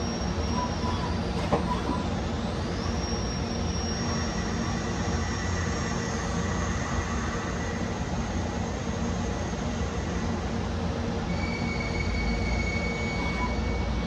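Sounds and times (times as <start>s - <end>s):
lathe spindle whine: 0.0s - 10.4s.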